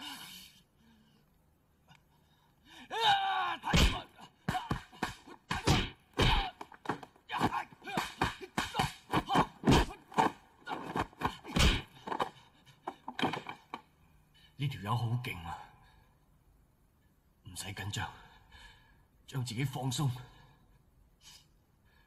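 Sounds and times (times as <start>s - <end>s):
grunts: 3.7s - 6.6s, 7.3s - 12.3s
punch and kick impacts: 3.7s - 12.0s
fighter yelling: 7.3s - 9.6s.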